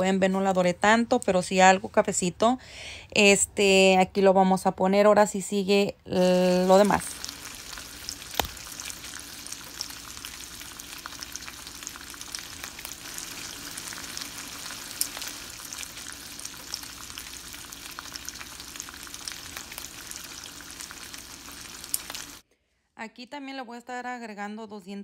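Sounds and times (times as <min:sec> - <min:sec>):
vegetables sizzling in oil: 0:06.2 - 0:22.4
utensil stirring vegetables: 0:06.3 - 0:22.4.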